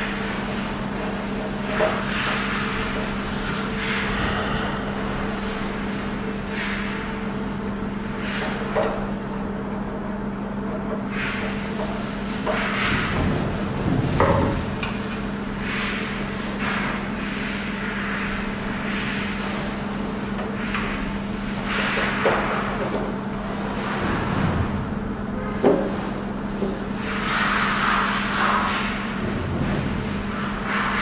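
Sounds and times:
steady low hum: 0.0s - 15.8s.

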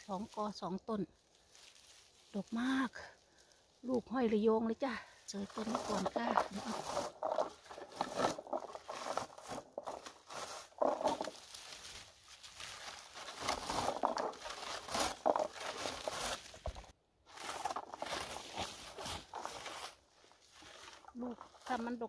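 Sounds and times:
rustling and crackling of bushes: 0.0s - 22.0s.

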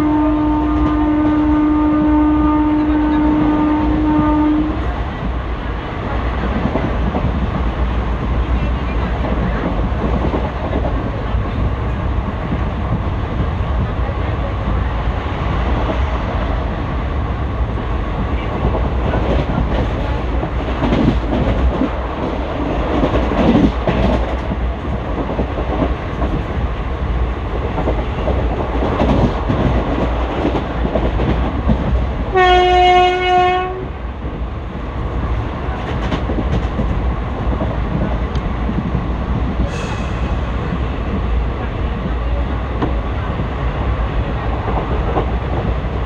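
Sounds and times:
train horn blast: 0.0s - 4.8s, 32.3s - 34.0s
train wheel and rail rumble: 0.0s - 46.0s.

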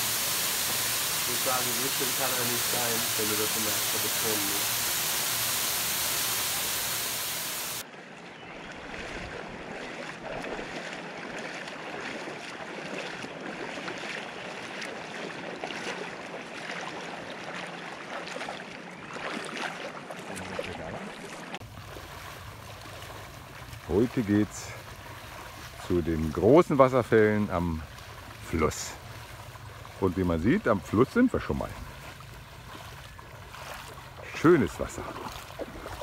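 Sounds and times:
people wading through water: 0.0s - 5.6s, 7.6s - 36.0s
waterfall rushing: 0.0s - 7.8s.

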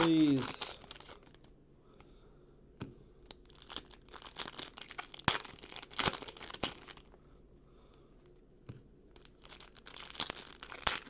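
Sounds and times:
foil pack crinkling: 0.0s - 1.4s, 3.4s - 7.1s, 9.2s - 11.0s.

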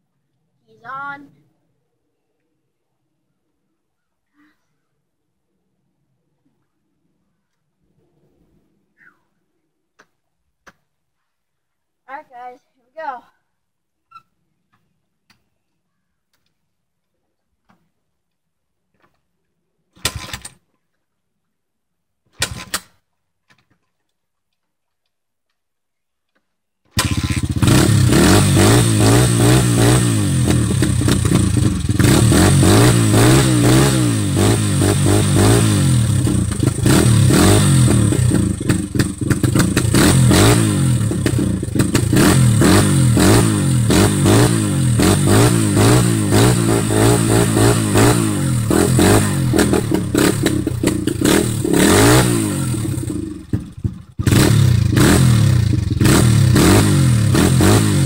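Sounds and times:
dirt bike engine revving: 27.0s - 58.0s.

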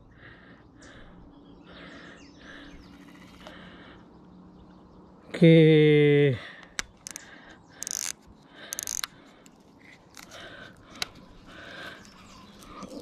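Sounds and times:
fishing reel ratcheting: 7.0s - 7.2s, 7.8s - 9.2s.

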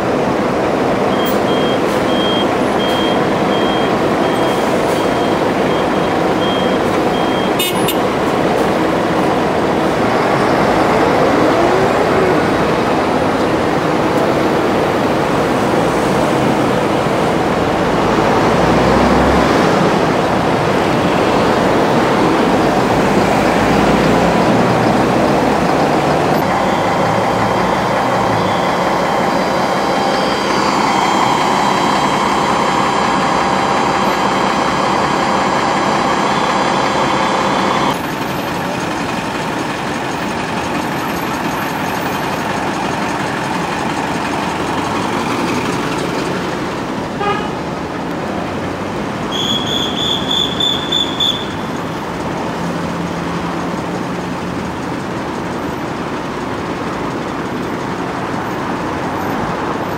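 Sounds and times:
road traffic noise: 0.0s - 59.9s
high beeps: 1.1s - 7.9s
steady tone: 26.4s - 38.0s.

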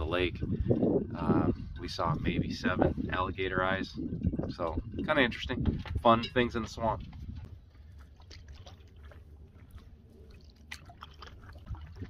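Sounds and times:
paddle splashes and drips: 7.0s - 12.0s.

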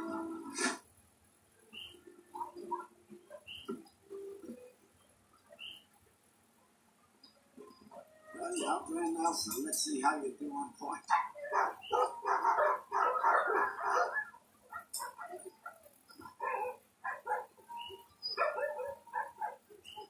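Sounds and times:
sled dogs barking: 1.8s - 4.3s, 10.9s - 20.0s.

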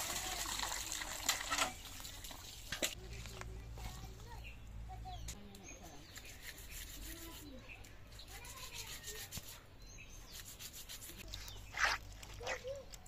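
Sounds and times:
rubbing and scraping: 6.0s - 12.8s.

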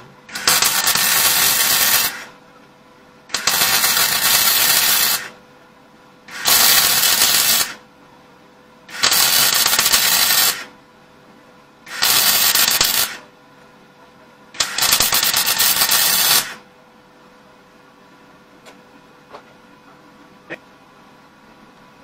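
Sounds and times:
faint steady hum: 0.0s - 9.0s
welder arc crackling: 0.3s - 2.4s, 3.3s - 5.4s, 6.3s - 7.8s, 8.9s - 10.7s, 11.9s - 13.3s, 14.6s - 16.6s.

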